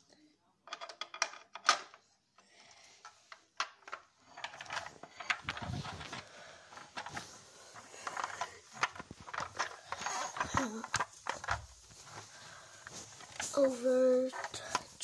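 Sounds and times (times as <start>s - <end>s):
plastic toy car clicking: 0.7s - 2.0s, 3.0s - 11.6s.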